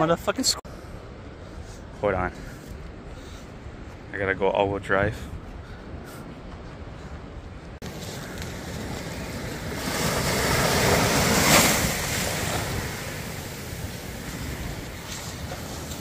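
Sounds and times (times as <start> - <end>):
wind rumbling on microphone: 0.7 - 16.0
ocean surf washing onto beach: 7.8 - 16.0.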